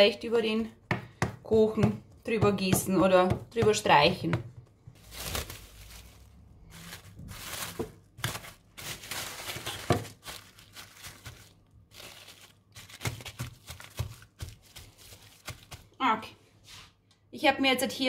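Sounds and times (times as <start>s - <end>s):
cling film crinkling: 5.0s - 15.9s.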